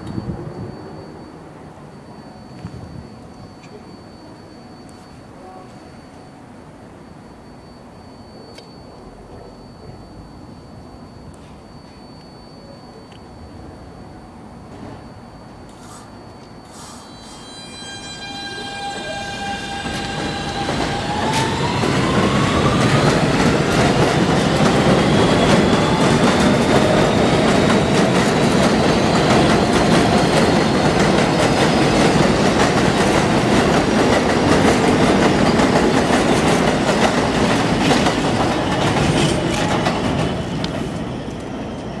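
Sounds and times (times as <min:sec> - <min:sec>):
train motor electric whine: 0:00.0 - 0:32.9
train wheels clacking on rails: 0:18.9 - 0:42.0.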